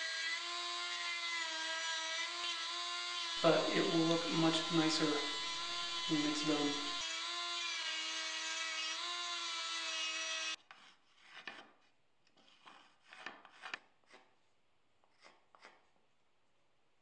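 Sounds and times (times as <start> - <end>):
rotary carving tool whining: 0.0 - 10.6
marker scratching on wood: 10.6 - 14.3.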